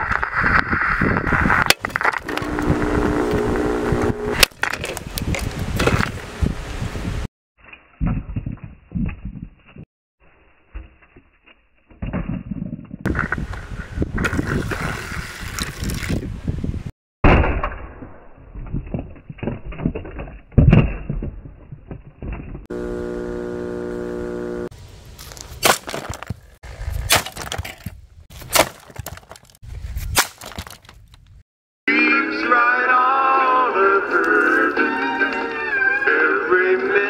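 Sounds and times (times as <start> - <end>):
plastic and vinyl cracking: 0.0 - 5.5
steady buzzing tone: 2.2 - 4.4, 22.7 - 24.7.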